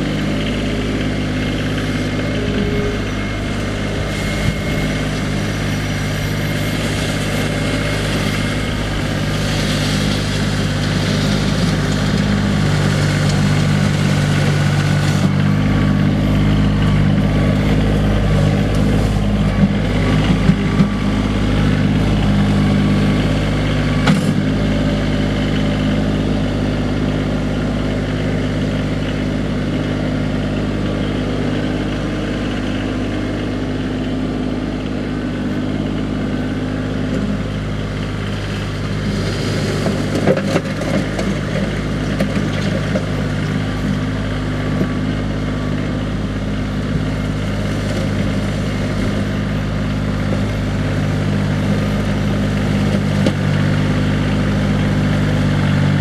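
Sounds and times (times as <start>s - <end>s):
tractor diesel engine running: 0.0s - 56.0s
clatter: 38.2s - 46.0s.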